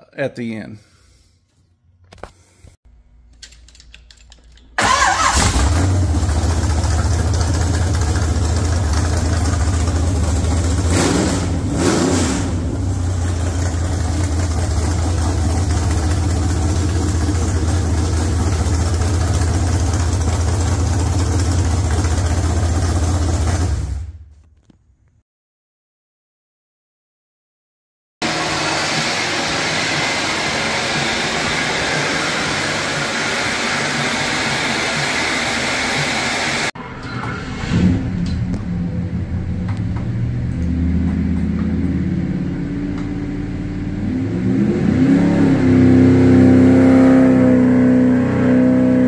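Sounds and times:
vee eight engine running and revving: 4.9 - 24.0, 28.2 - 36.8, 37.7 - 49.0.

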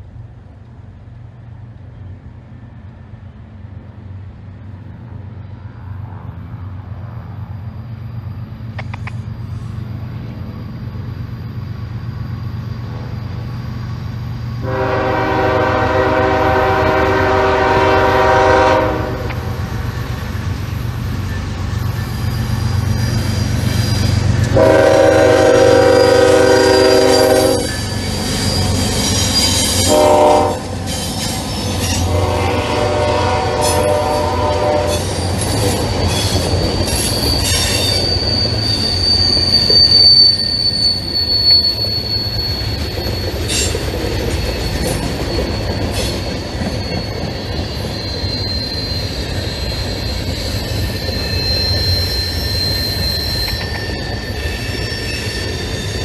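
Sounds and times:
diesel locomotive rumble: 0.0 - 56.0
train air horn blasts: 14.6 - 19.6, 24.5 - 27.8, 29.8 - 30.7, 31.8 - 35.2.

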